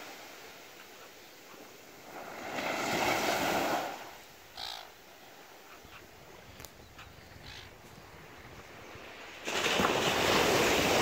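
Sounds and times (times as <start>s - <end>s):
small wave breaking on sand: 2.0s - 4.2s, 9.0s - 11.0s
gull call: 4.6s - 5.0s.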